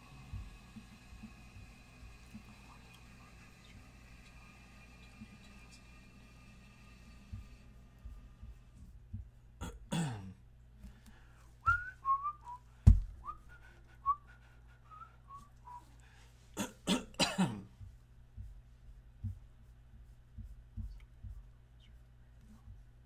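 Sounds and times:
man clearing throat: 9.6 - 10.4, 16.6 - 17.7
man whistling a tune: 11.6 - 12.6, 13.2 - 14.3, 14.9 - 15.8
sharp thump: 12.9 - 13.2.

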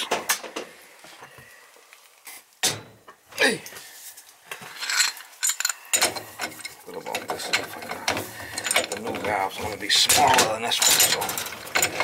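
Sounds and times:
light metallic clatter: 4.8 - 12.0.

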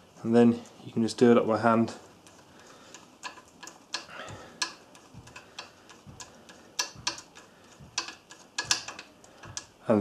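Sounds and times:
nut clicking on metal stud: 2.3 - 9.8.

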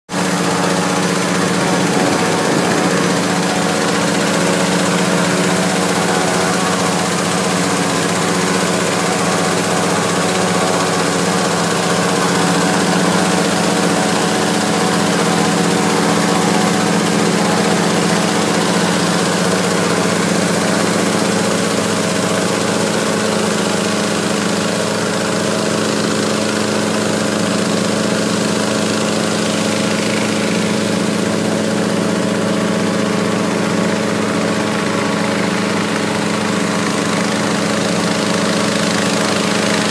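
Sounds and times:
small engine hum: 0.1 - 39.9
rush of air from fan: 0.2 - 23.6.

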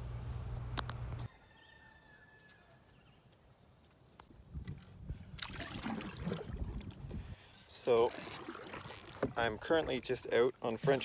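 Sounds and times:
low steady rumble: 0.0 - 1.3
canoe water noise: 5.4 - 11.0.

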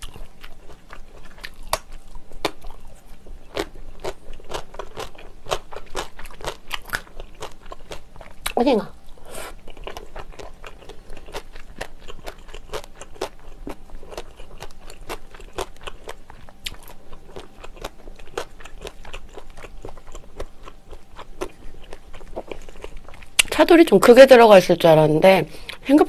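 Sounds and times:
person chewing noodles: 0.0 - 23.5
wet mouth clicks and crunches: 21.4 - 23.6.

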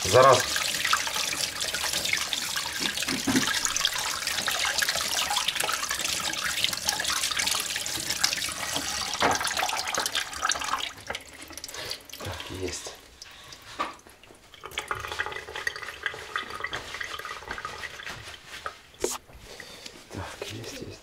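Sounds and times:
hands washing under water: 0.0 - 19.9
tap running into sink: 0.9 - 11.3.

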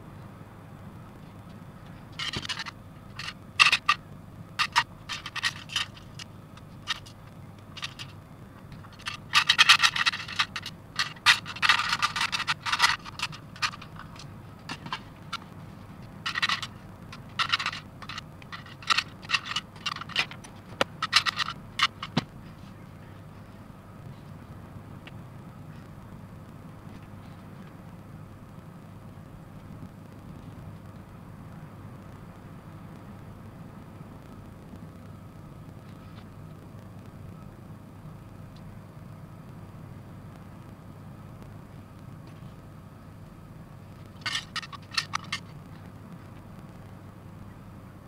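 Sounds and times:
plastic parts clicking and scraping: 2.1 - 4.0, 4.6 - 22.3, 44.2 - 45.9
parts rattling in plastic box: 2.2 - 4.0, 4.6 - 7.2, 7.8 - 15.5, 16.2 - 22.3, 44.2 - 45.5.

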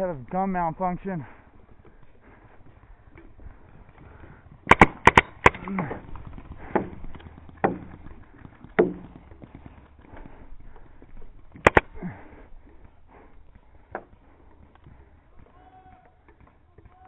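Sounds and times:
paintball marker shots: 4.7 - 9.2, 11.6 - 12.1.

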